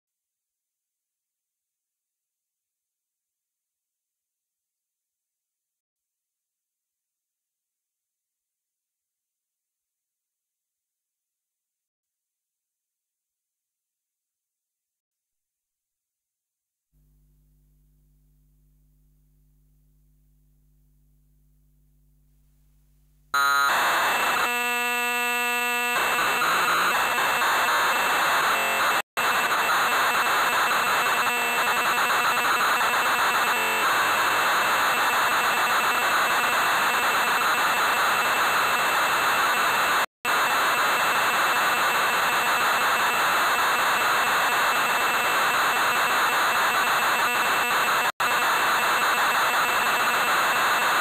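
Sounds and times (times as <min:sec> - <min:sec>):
buzzy steady data tones: 0:23.3 - 0:39.1.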